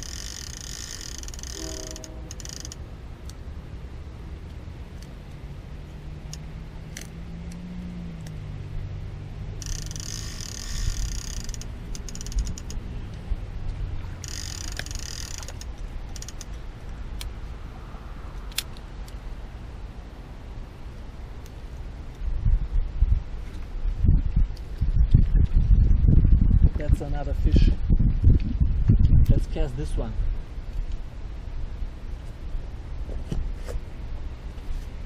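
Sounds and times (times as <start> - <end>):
fishing reel winding: 0.0 - 2.8, 9.6 - 12.8, 14.2 - 16.5
low steady hum: 0.0 - 35.0.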